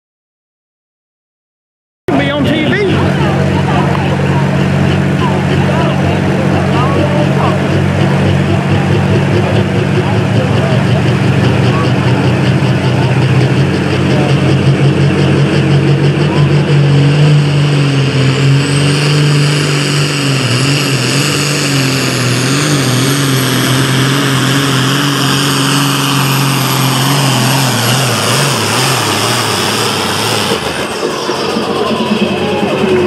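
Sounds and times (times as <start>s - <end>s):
diesel tractor engine at full throttle: 2.1s - 33.0s
high turbo whine: 2.1s - 33.0s.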